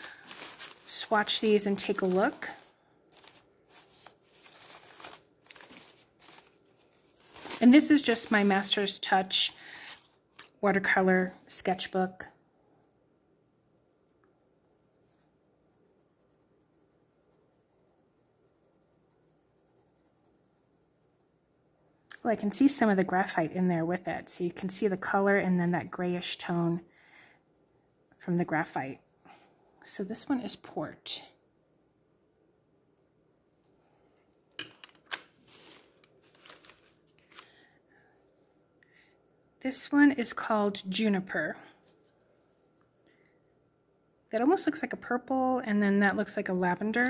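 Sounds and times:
pencil scratching on paper: 0.3 - 10.0, 14.4 - 31.2.

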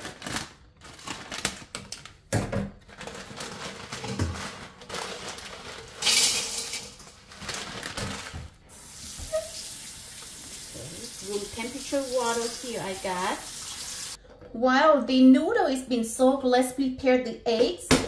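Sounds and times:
plastic bag crinkling: 0.0 - 8.7
tap water running into bowl: 8.9 - 14.2.

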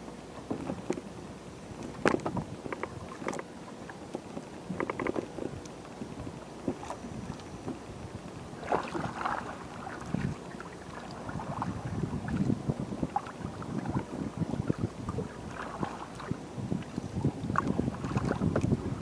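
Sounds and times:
paddle stroking water: 0.0 - 19.0
wooden knocks in boat: 0.4 - 1.2, 1.8 - 7.9, 8.6 - 19.0.

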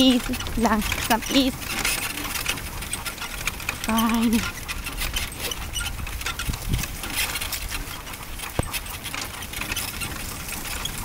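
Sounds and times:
cart rattling over grass: 0.0 - 11.0.

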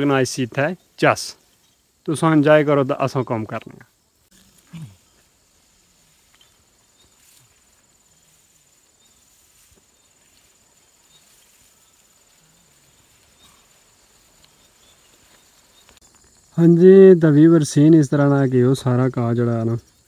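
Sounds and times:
faint outdoor ambience: 0.0 - 20.0
soft ticks: 14.3 - 16.1.

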